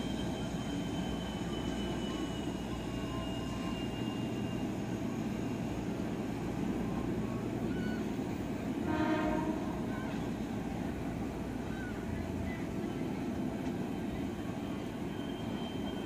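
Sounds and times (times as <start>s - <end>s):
faint high whine: 0.0s - 8.2s
electric train rumbling past: 0.0s - 16.0s
train horn blast: 8.8s - 10.0s.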